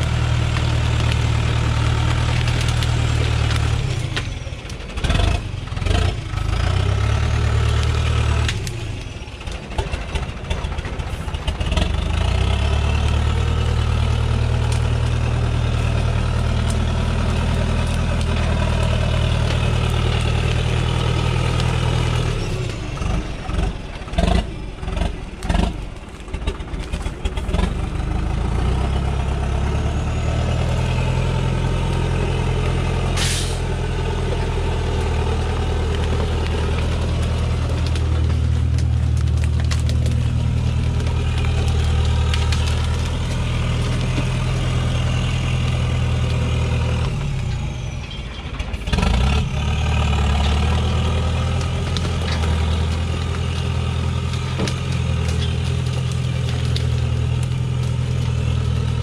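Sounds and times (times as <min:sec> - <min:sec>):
truck engine running: 0:00.0 - 0:59.0
short hiss: 0:33.2 - 0:33.7.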